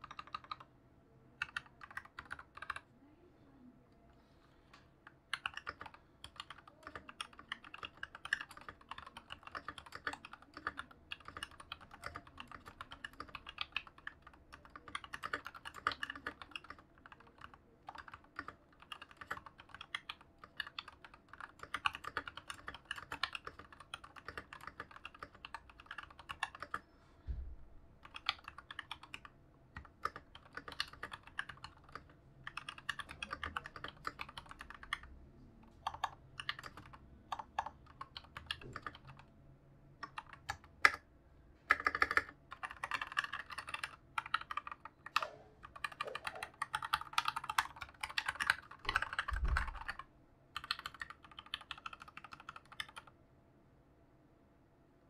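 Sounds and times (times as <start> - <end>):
mechanical keyboard typing: 0.0 - 0.7, 1.4 - 2.9, 5.0 - 26.8, 28.0 - 39.3, 40.0 - 41.1, 41.7 - 53.1
soft low thump: 27.2 - 27.7, 49.4 - 49.8.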